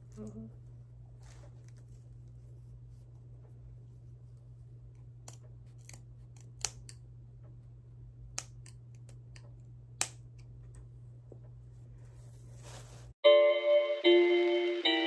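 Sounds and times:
scissors snipping through braids: 0:04.9 - 0:07.1, 0:08.3 - 0:10.6.

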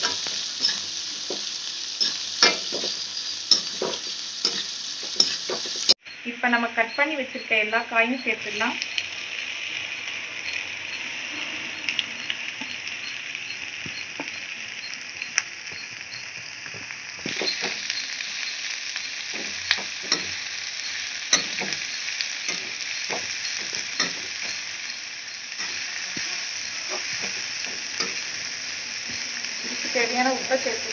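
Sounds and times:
vegetables sizzling in hot oil: 0:00.0 - 0:30.9
metal ladle scraping pan: 0:02.0 - 0:05.9.

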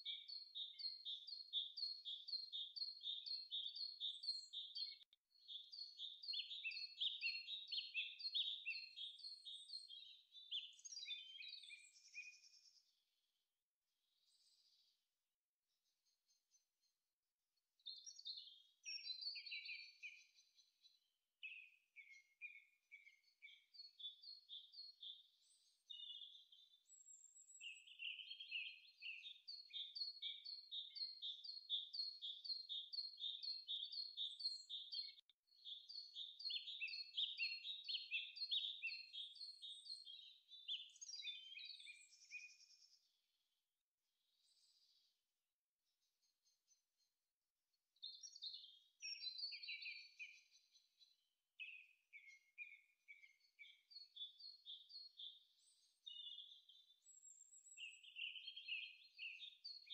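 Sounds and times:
birds chirping and singing: 0:00.0 - 0:12.6, 0:17.9 - 0:20.4, 0:21.4 - 0:42.8, 0:48.0 - 0:50.8, 0:51.6 - 0:59.9.

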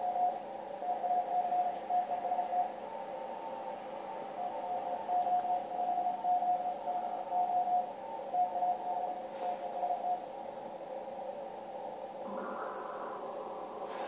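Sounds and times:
morse code beeps: 0:00.0 - 0:02.8, 0:04.4 - 0:10.2
radio band hiss: 0:00.0 - 0:14.0.

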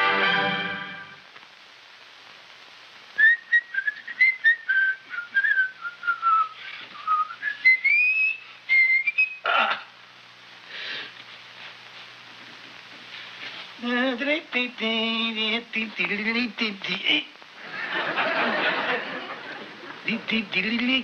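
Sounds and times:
man whistling a tune: 0:03.2 - 0:09.4.

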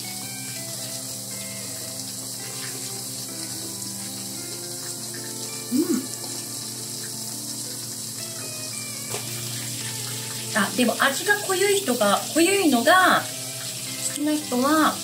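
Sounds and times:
chicken deep-frying in oil: 0:00.0 - 0:15.0
person saying uh: 0:05.7 - 0:06.2.

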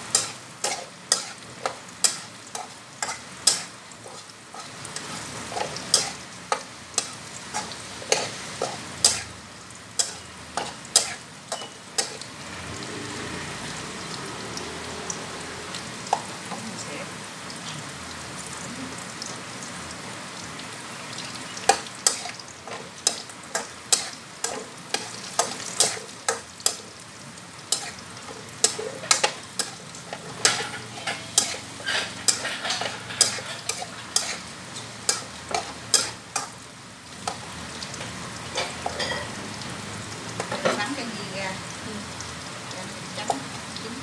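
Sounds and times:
food sizzling in a wok: 0:00.0 - 0:44.0
spatula clacking against wok: 0:00.1 - 0:03.7, 0:05.6 - 0:09.3, 0:10.0 - 0:12.2, 0:21.7 - 0:26.9, 0:28.6 - 0:34.4, 0:35.1 - 0:36.5.

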